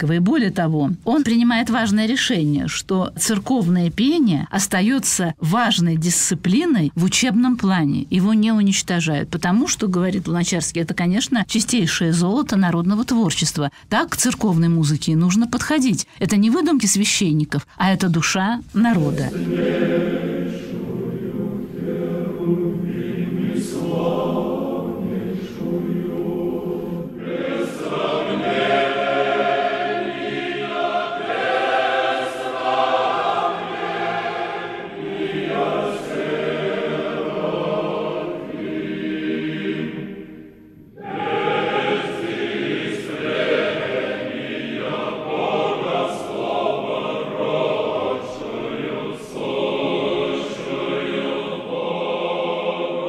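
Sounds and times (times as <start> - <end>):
choir singing unaccompanied: 19.0 - 53.0.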